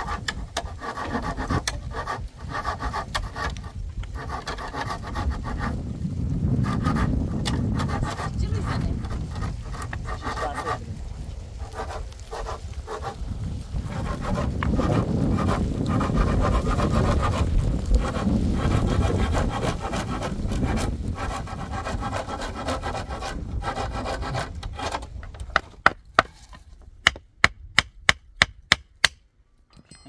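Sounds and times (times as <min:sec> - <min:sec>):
hand saw cutting wood: 0:00.0 - 0:05.8, 0:06.5 - 0:10.9, 0:11.5 - 0:13.2, 0:13.8 - 0:27.2.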